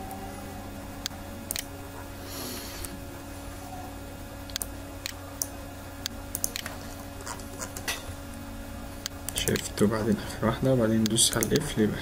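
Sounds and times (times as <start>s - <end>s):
electrical hum: 0.0s - 12.0s
computer mouse clicking: 1.0s - 1.7s, 4.5s - 7.8s, 9.0s - 9.7s, 11.0s - 11.7s.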